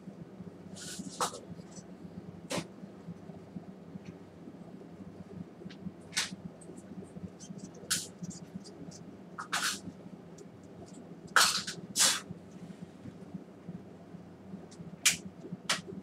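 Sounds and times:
hissing puffs of air: 11.4 - 13.0.

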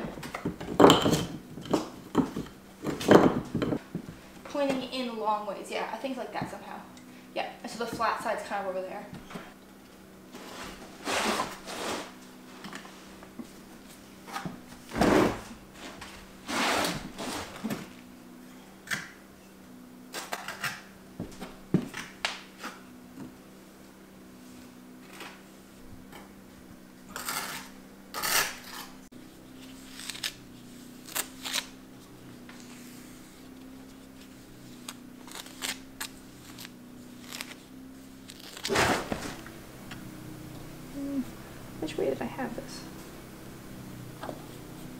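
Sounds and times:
faint steady hum: 0.0 - 44.9
rough scrape: 10.3 - 13.0, 14.9 - 17.6, 27.1 - 30.4, 38.2 - 39.5.

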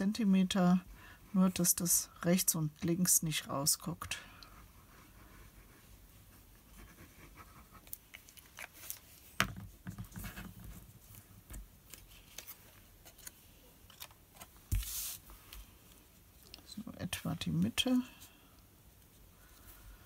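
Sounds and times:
paper rustling: 10.0 - 15.7.

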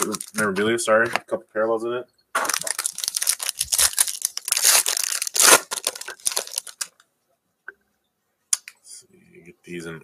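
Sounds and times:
wrapper tearing and crinkling: 0.0 - 0.6, 2.4 - 7.0.

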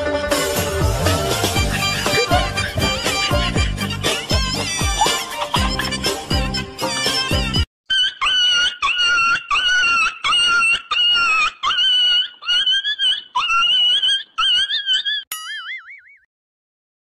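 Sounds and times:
music: 0.0 - 7.7.

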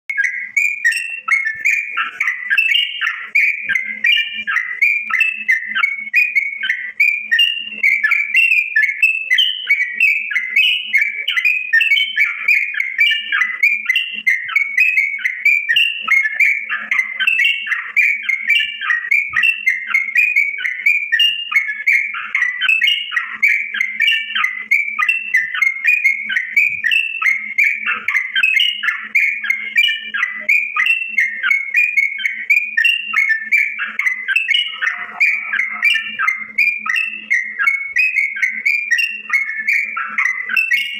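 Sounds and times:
bird singing whistled notes: 0.1 - 40.9.

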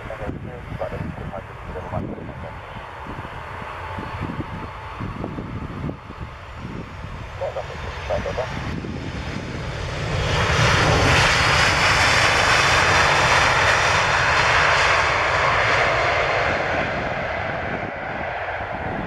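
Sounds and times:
jet engine roar: 0.0 - 19.0.

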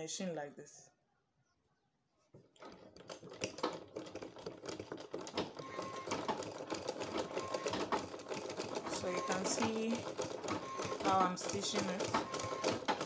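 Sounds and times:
sewing machine stitching: 2.6 - 13.0.

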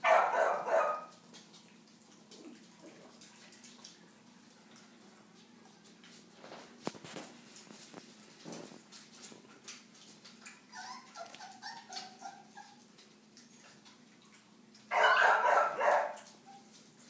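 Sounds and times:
puppy yelp: 0.0 - 1.2, 10.5 - 12.9, 14.9 - 16.8
puppy lapping water: 0.0 - 17.0
puppies yipping and whimpering: 10.3 - 13.8, 14.9 - 16.8.

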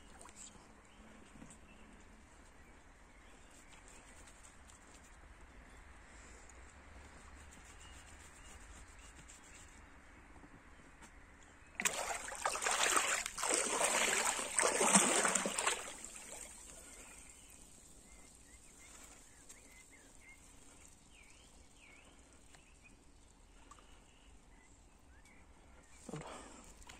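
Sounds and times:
faint outdoor ambience: 0.0 - 26.9
water splashing and sloshing: 11.8 - 17.4
faint bird chirps: 15.6 - 26.1.

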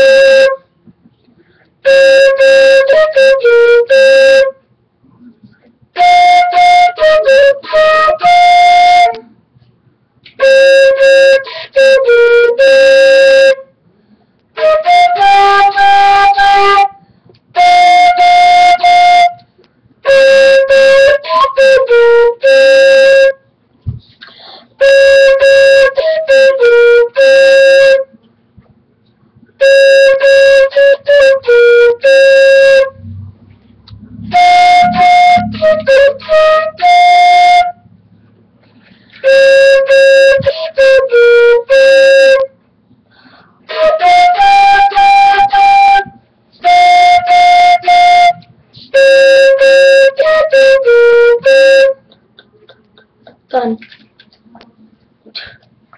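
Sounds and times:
solo flute phrases: 0.0 - 0.7, 1.8 - 5.3, 5.9 - 9.4, 10.3 - 13.7, 14.6 - 23.4, 24.8 - 28.2, 29.6 - 38.0, 39.1 - 42.5, 43.6 - 52.0.

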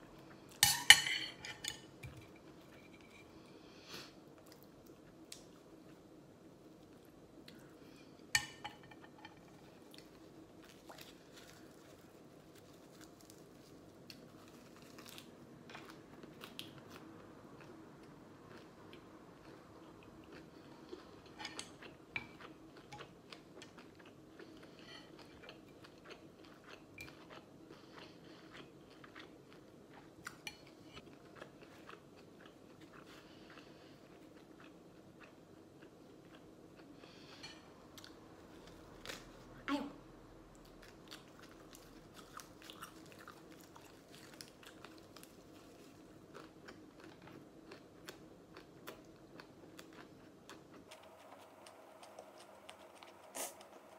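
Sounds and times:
low room hum: 0.0 - 53.9
chewing and crunching leaves: 9.6 - 36.9, 40.6 - 53.9.

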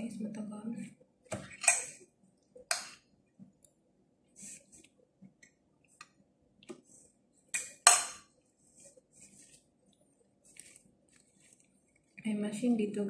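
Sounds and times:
soft rustles: 8.4 - 12.3.

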